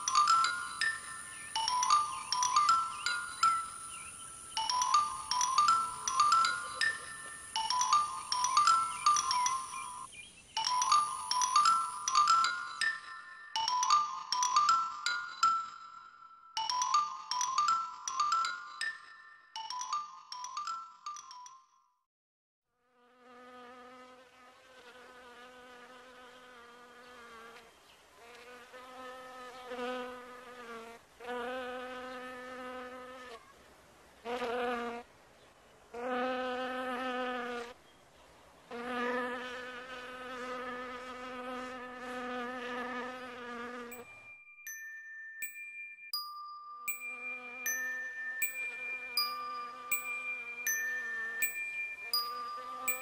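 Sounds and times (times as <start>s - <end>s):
insect-like buzzing drone: 0.0s - 12.8s, 38.6s - 44.0s, 47.1s - 53.0s
chime notes: 0.0s - 21.6s, 43.9s - 53.0s.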